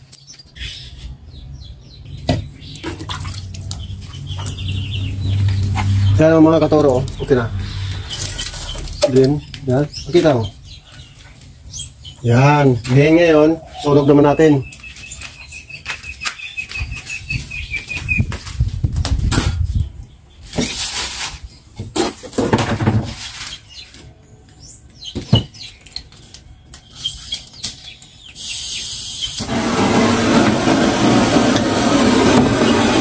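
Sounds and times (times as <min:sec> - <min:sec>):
bird chirping: 0:00.0 - 0:18.3, 0:23.4 - 0:29.4
butane torch flame hissing: 0:28.4 - 0:33.0.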